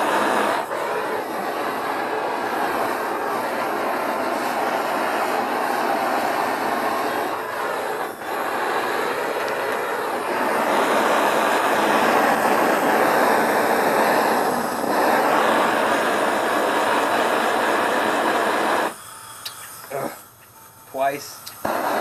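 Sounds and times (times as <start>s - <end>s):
propane torch flame rushing: 0.0s - 22.0s.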